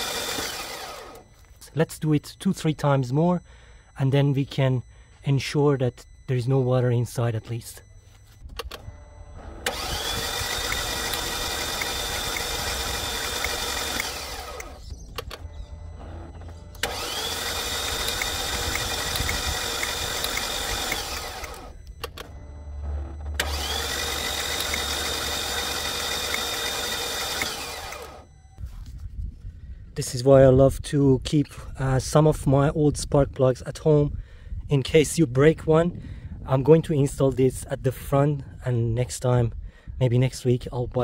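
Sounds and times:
engine starter cranking: 0.0s - 4.0s, 7.2s - 28.4s.

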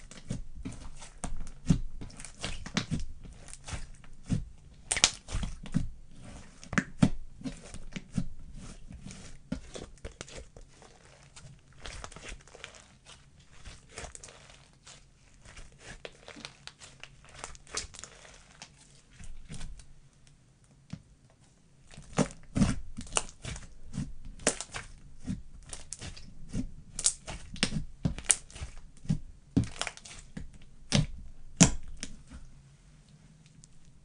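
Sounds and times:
slime crackling: 0.0s - 19.9s, 21.8s - 32.4s.

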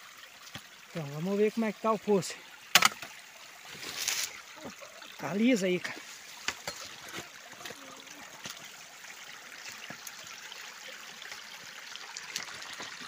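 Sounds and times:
stream trickling: 0.0s - 13.0s
brushing vegetation: 3.7s - 4.4s.

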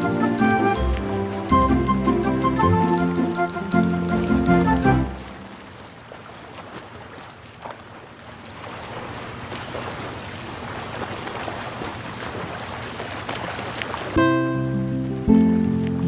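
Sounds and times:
music: 0.0s - 5.4s, 14.2s - 16.0s.

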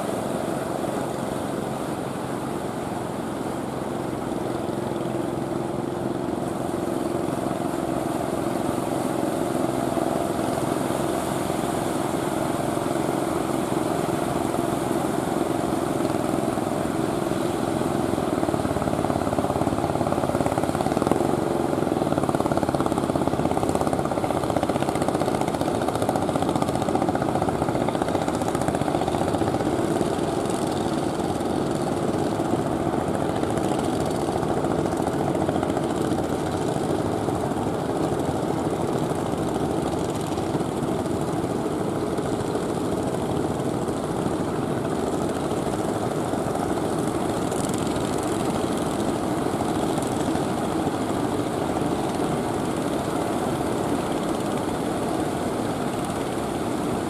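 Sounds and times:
boat engines running: 0.0s - 57.0s
large waves breaking: 6.2s - 30.5s.

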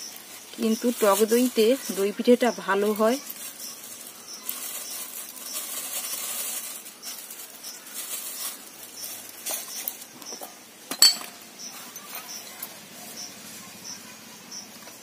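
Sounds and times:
utensils scraping and clinking bowl: 4.4s - 12.8s.

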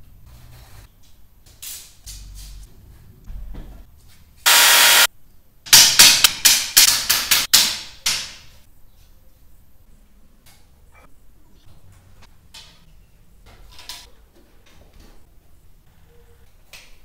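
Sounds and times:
hammer striking wooden strip: 5.7s - 8.4s.

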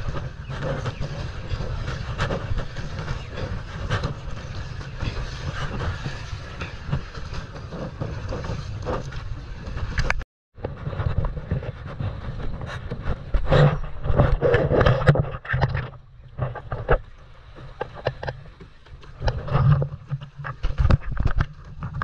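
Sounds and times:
wind buffeting microphone: 0.0s - 15.4s
water splashing around kayak: 0.0s - 22.0s.

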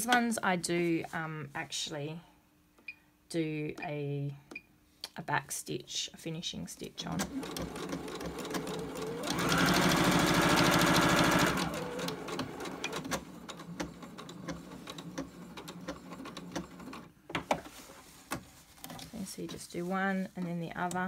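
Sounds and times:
sewing machine stitching: 7.2s - 17.1s.

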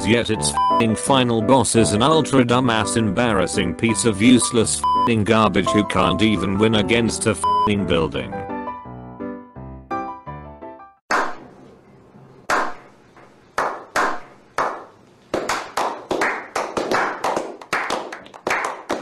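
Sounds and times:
group clapping: 11.1s - 11.5s, 12.5s - 19.0s.

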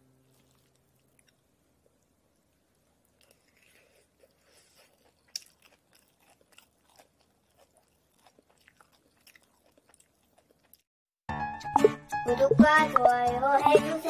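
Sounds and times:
chewing and crunching food: 0.2s - 10.9s.

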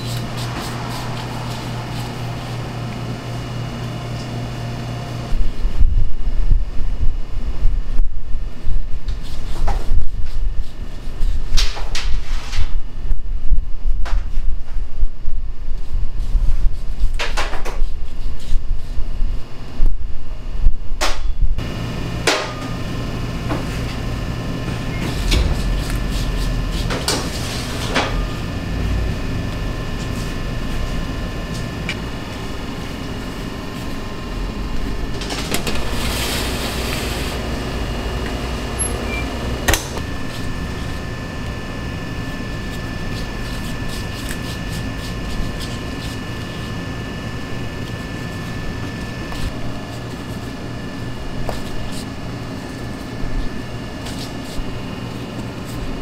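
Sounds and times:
metal tray sliding into rack: 0.0s - 3.8s
bakery machinery hum: 0.0s - 56.0s.

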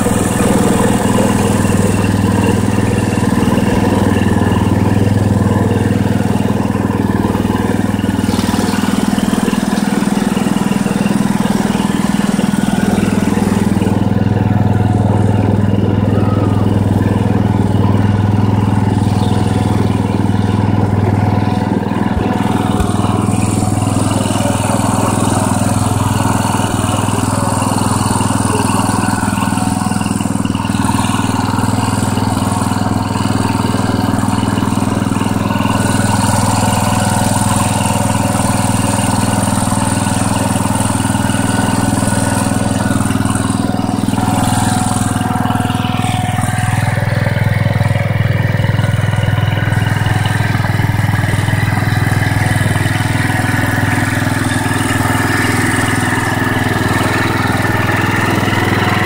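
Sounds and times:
rising whine: 0.0s - 33.5s
garden tractor engine running: 0.0s - 59.0s.

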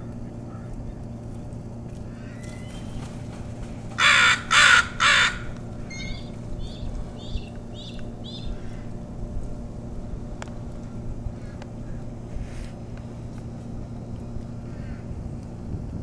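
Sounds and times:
higher bird calls: 2.0s - 9.0s
crow cawing: 2.1s - 6.3s, 8.4s - 9.0s, 11.4s - 12.0s, 14.7s - 15.1s.

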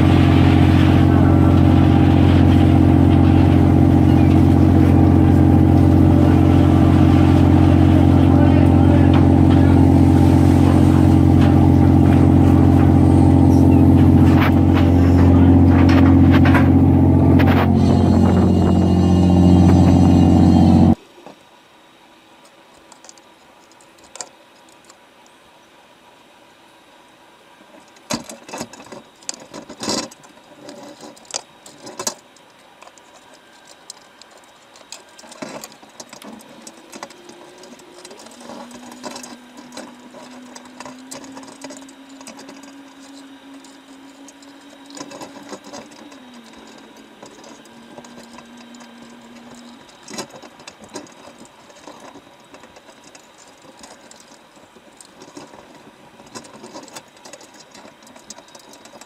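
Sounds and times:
steady low hum: 0.0s - 59.0s
crabs clicking on wire underwater: 22.4s - 25.4s, 27.7s - 59.0s.

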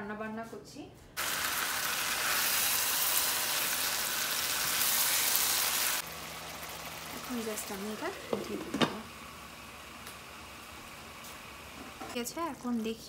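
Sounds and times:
meat sizzling in hot oil: 1.2s - 8.2s.

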